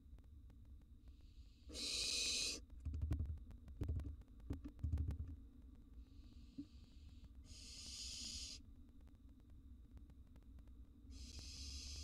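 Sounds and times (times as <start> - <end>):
owlet hissing begging call: 1.7 - 2.6.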